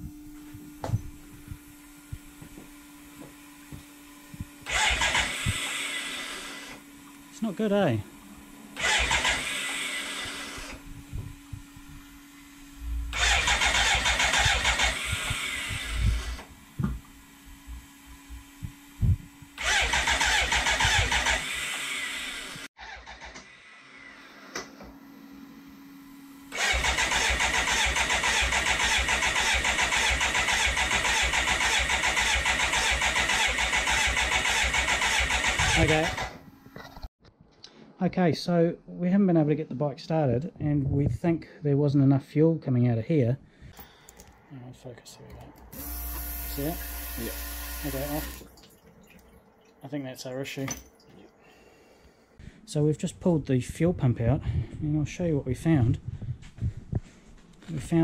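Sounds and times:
steady low hum: 0.0s - 9.4s, 10.2s - 19.6s, 35.8s - 58.0s
electric starter cranking engine: 4.4s - 24.9s, 26.3s - 37.0s, 45.6s - 48.6s.

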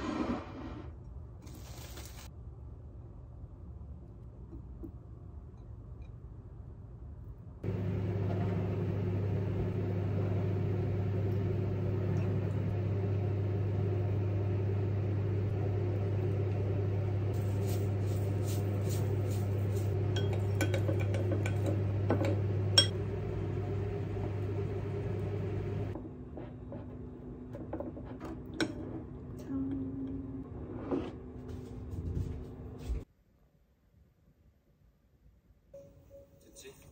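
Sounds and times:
microwave oven humming: 7.6s - 30.6s.

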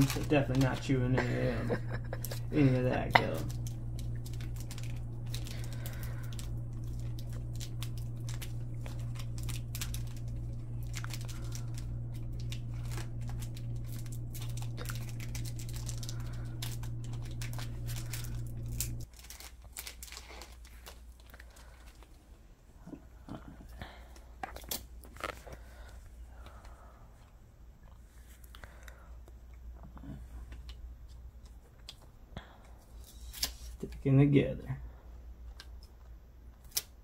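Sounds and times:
card wrappers crinkling and tearing: 0.0s - 22.3s, 24.4s - 26.0s, 32.9s - 34.0s, 36.5s - 37.0s
steady low hum: 0.0s - 37.0s.

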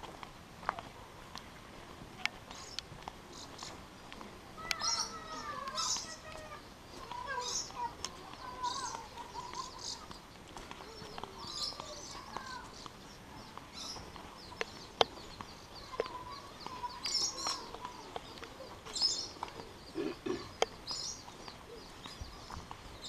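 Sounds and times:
birds chirping and calling: 0.0s - 23.0s.

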